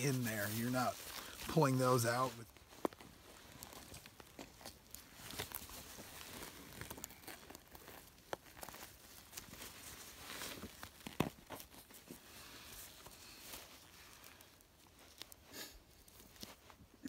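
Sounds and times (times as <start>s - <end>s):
skin tearing: 5.0s - 9.7s.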